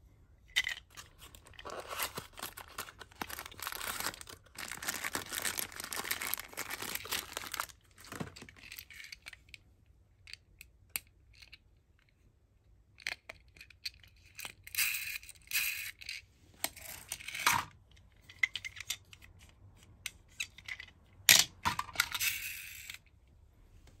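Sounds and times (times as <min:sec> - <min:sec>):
plastic wrapping crinkling: 0:00.9 - 0:08.5
toy car clacking down: 0:14.7 - 0:16.2, 0:20.4 - 0:23.1.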